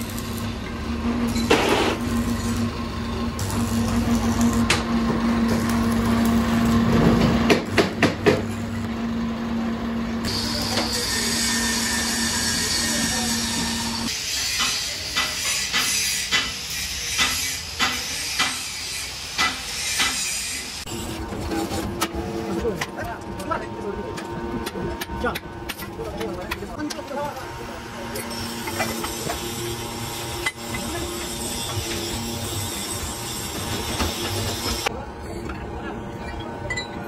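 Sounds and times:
arc welding hum with crackling: 0.0s - 35.5s.

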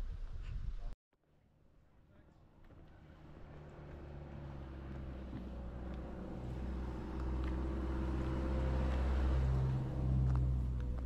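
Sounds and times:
vehicle engine humming: 1.4s - 11.0s.

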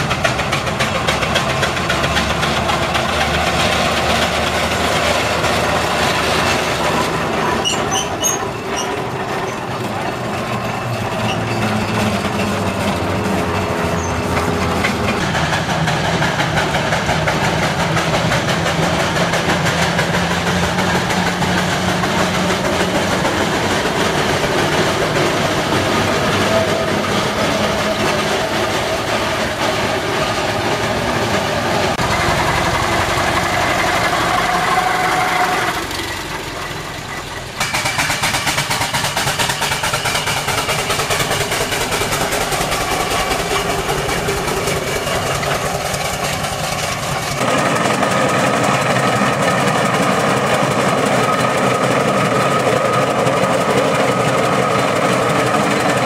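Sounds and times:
steam traction engines chugging: 0.0s - 56.0s.

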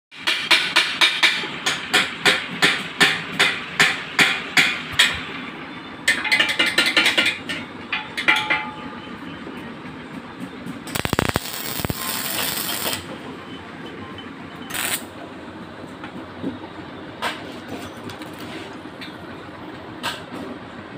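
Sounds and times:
welding arc hissing: 10.9s - 13.1s, 14.7s - 15.1s.

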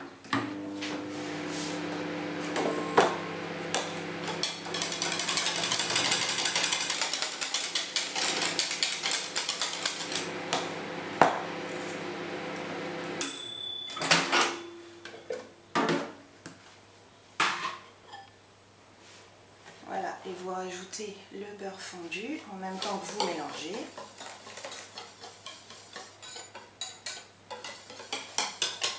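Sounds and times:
microwave oven humming: 0.3s - 15.2s
microwave beep: 2.4s - 3.7s, 13.2s - 15.3s.

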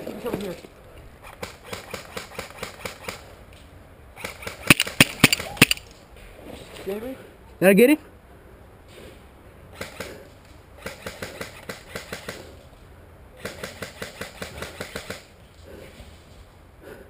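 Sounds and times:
airsoft gunfire: 4.2s - 5.8s, 10.8s - 12.4s, 13.4s - 15.3s.

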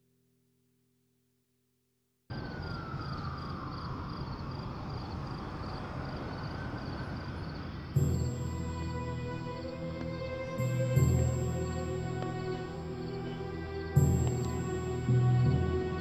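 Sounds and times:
city traffic: 2.3s - 16.0s
music with loud chord: 8.0s - 16.0s.

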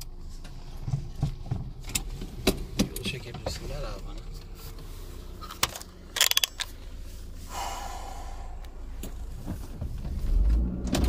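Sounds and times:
car engine rumble: 0.0s - 11.0s
metallic clicks: 5.5s - 6.8s
keys jingling: 6.2s - 6.7s.

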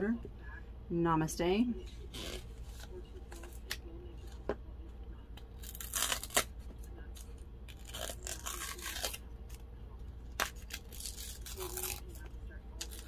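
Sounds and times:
paper seal tearing: 5.6s - 6.5s, 7.7s - 9.2s.

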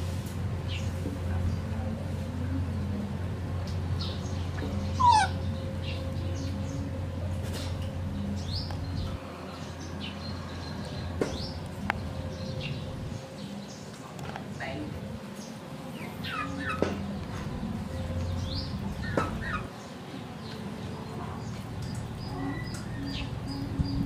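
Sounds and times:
animal squeal: 5.0s - 5.4s.

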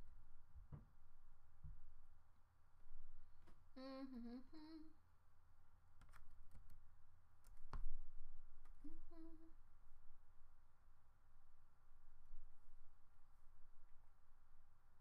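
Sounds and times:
person humming: 3.8s - 5.0s, 8.8s - 9.6s
soft mouse clicks: 6.0s - 6.8s.

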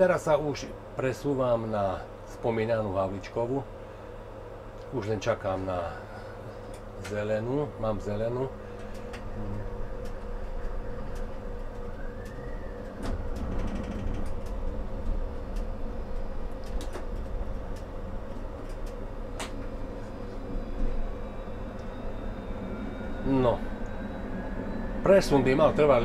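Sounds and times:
tram motor whine: 0.0s - 26.0s
tram rumble and hum: 0.0s - 26.0s.

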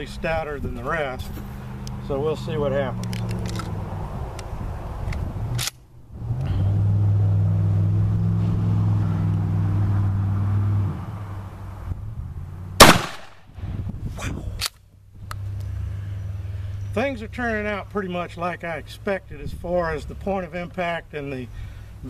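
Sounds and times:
shotgun blast: 12.8s - 13.4s.

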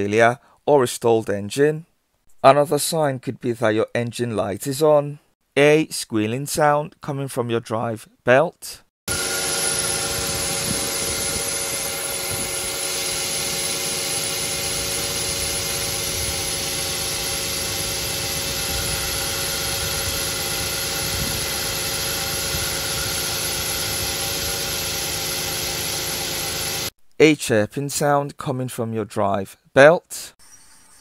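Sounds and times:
car engine running: 9.1s - 26.9s
drive belt squealing: 9.1s - 26.9s.

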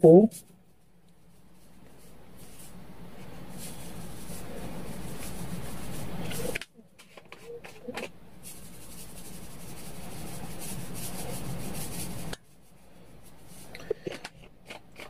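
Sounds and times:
salt grains rattling hiss: 1.3s - 6.6s, 8.4s - 13.8s.

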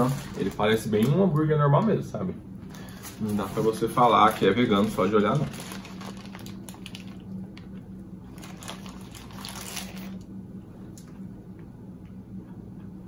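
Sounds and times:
paper wrapper rustling: 0.0s - 1.1s, 2.7s - 7.4s, 8.3s - 10.2s
steady low hum: 0.0s - 13.0s.

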